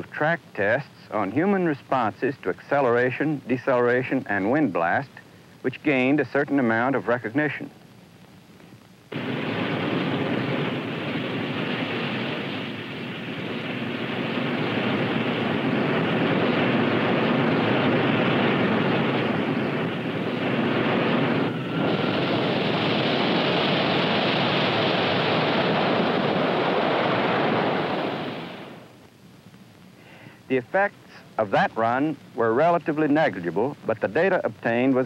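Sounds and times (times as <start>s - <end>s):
rocket motors roaring: 9.1s - 28.9s.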